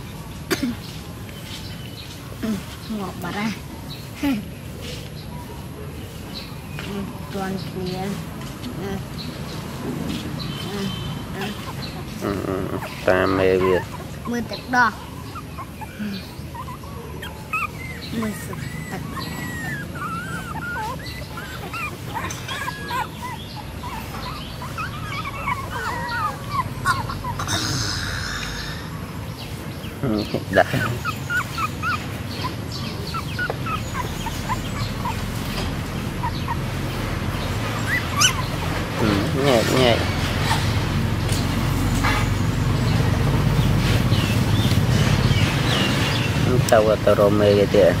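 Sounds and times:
puppies whimpering: 9.0 - 29.6, 30.2 - 41.8.

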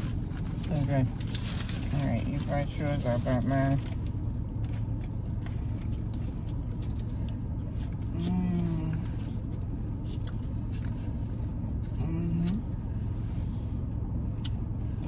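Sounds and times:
paper wrappers crinkling: 0.0 - 11.2
car air conditioning hum: 0.0 - 15.0
chewing: 3.8 - 12.7.

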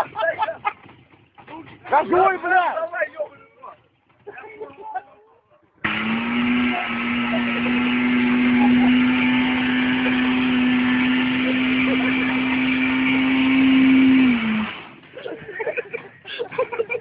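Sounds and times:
motorcycle engine revving: 5.8 - 15.1.

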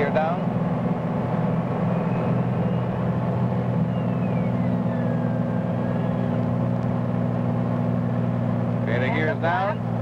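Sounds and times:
airplane engine and propeller droning: 0.0 - 10.0.

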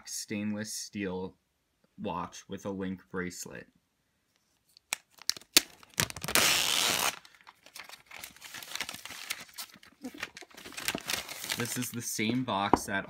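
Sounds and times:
plastic crinkling: 4.7 - 12.5
plastic wrap crackling: 4.8 - 12.5
plastic wrap tearing: 4.9 - 12.2.

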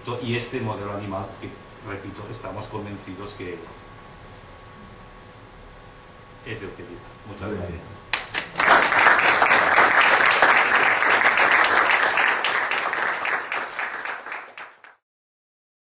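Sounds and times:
audience applauding: 8.1 - 15.0.

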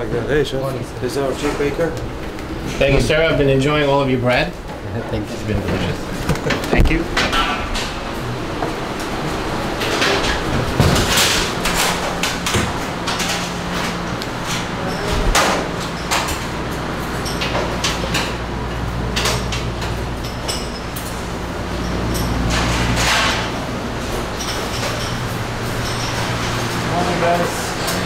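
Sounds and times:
low machinery hum: 0.0 - 28.0
knocks and clatter: 5.6 - 26.9.

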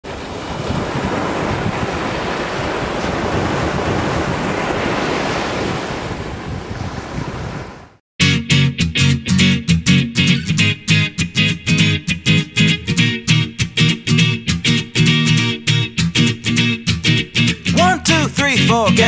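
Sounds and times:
surf breaking on beach: 0.0 - 8.0
wind on microphone: 0.1 - 8.0
upbeat guitar-led song: 8.2 - 19.0.

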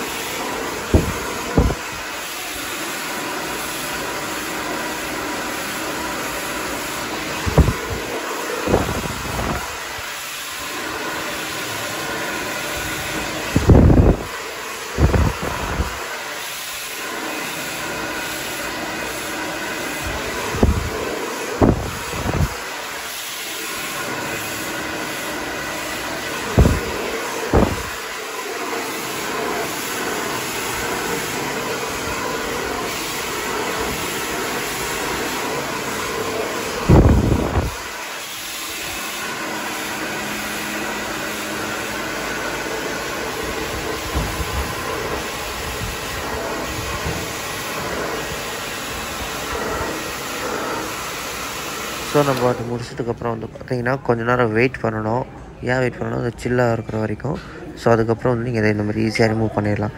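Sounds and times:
hair dryer running: 0.0 - 53.4.

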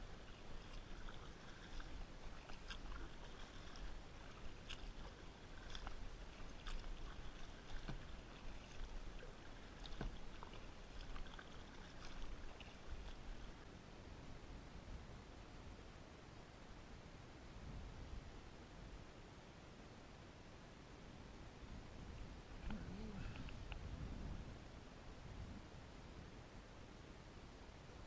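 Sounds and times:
paddle splashing in water: 0.0 - 13.7
faint low rumble: 0.0 - 28.0.

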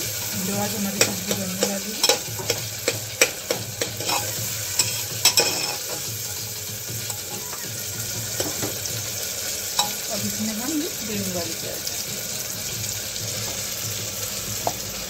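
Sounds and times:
vegetables sizzling in oil: 0.0 - 15.0
metal spoon clinking in pot: 1.0 - 6.1, 9.8 - 10.0.

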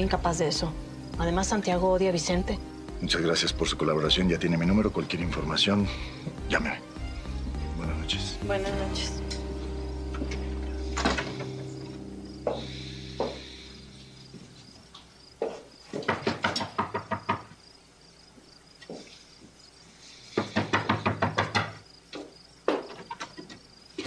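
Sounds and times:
background music: 0.0 - 15.4
knocks on wooden door: 16.0 - 17.5, 20.4 - 21.8.

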